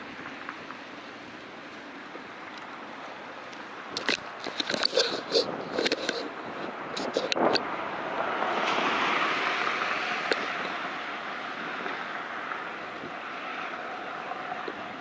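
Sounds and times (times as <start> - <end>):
vehicle passing road noise: 0.0 - 15.0.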